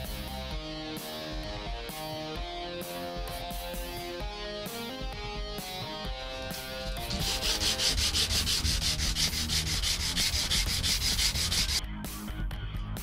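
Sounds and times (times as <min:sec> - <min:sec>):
plastic rubbing on sandpaper: 0:06.3 - 0:11.8.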